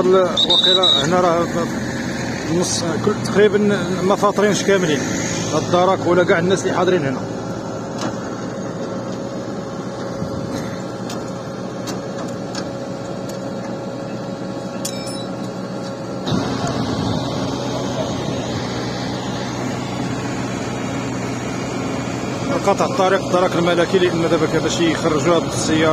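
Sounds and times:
vehicle engines humming: 0.0s - 25.9s.

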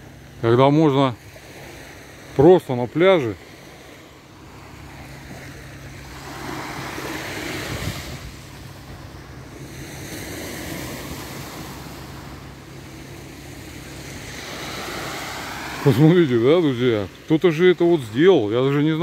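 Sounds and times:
waves washing onto beach: 0.0s - 19.0s
wind on microphone: 5.2s - 16.2s.

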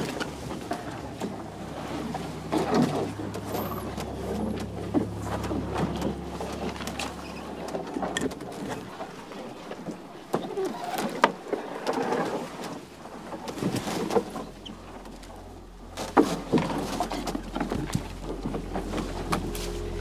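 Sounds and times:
branches scraping against canoe hull: 10.5s - 20.0s.

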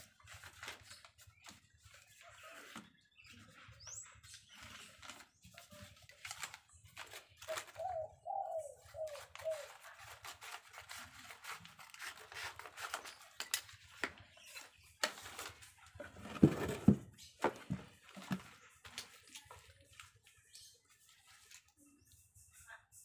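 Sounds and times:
paper rustling: 0.0s - 8.1s, 8.8s - 22.2s
scissors snipping paper: 4.6s - 7.9s, 8.8s - 15.6s
bird calling: 7.4s - 9.9s.

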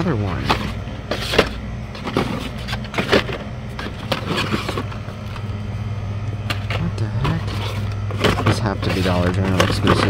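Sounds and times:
refrigerator humming: 0.0s - 10.0s
blister cards rustling and clicking: 6.3s - 10.0s.

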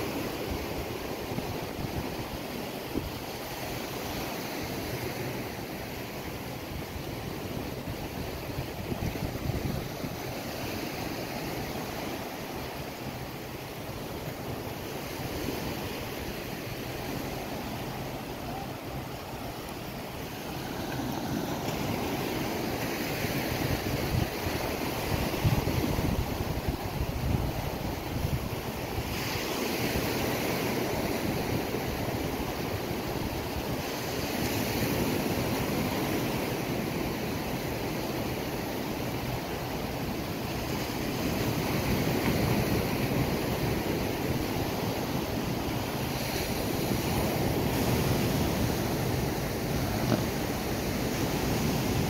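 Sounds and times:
surf washing onto sand: 0.0s - 52.0s
wind rumbling on microphone: 0.0s - 52.0s.

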